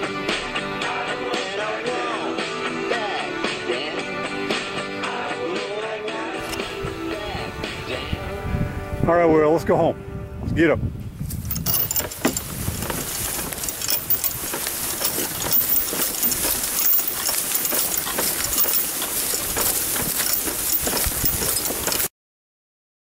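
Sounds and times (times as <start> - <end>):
harness chains jangling: 11.3 - 22.1.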